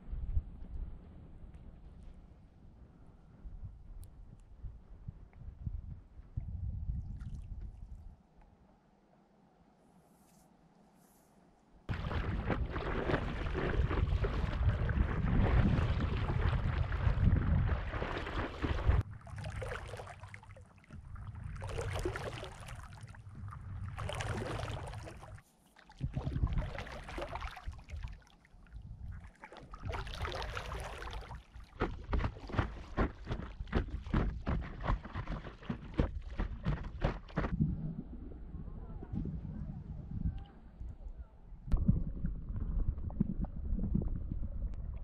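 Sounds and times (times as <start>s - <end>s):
water splashing around paddleboard: 11.9s - 37.8s
water lapping: 11.9s - 39.8s.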